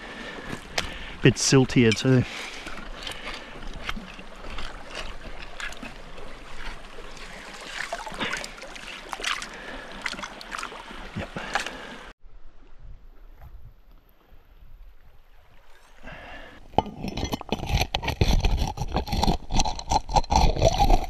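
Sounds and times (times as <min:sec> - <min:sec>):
hand tool scraping gravel underwater: 0:00.5 - 0:09.6, 0:16.7 - 0:21.0
water splashing: 0:00.6 - 0:12.1.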